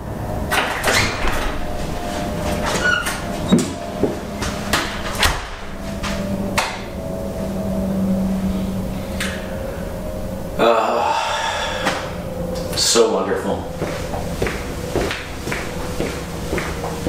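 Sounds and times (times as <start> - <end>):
steady low hum: 0.0 - 17.0
door opening and shutting: 0.4 - 7.0.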